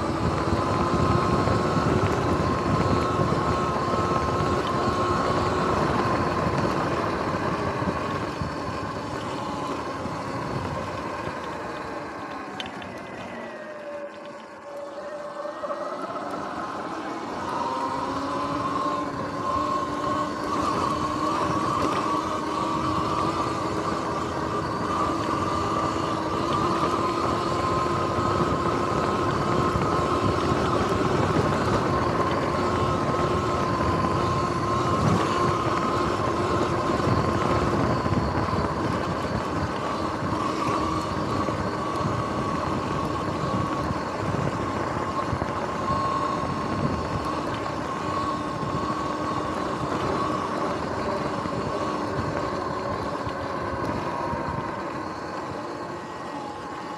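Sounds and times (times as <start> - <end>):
electric motor whine: 0.0 - 56.9
wind rush: 15.5 - 56.9.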